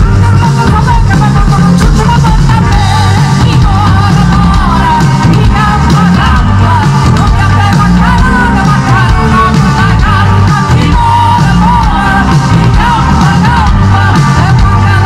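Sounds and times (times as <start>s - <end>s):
live band playing: 0.0s - 15.0s
woman singing: 0.0s - 15.0s.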